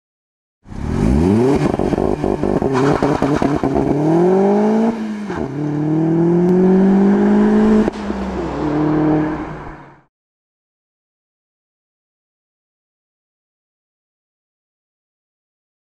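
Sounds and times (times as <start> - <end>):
car engine accelerating hard: 0.7 - 10.0.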